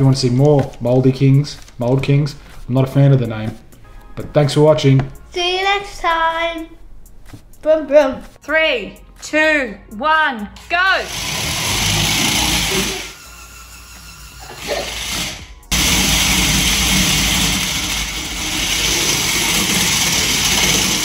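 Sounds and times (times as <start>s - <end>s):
music: 0.0s - 21.0s
toy vehicle motors whirring: 11.0s - 21.0s.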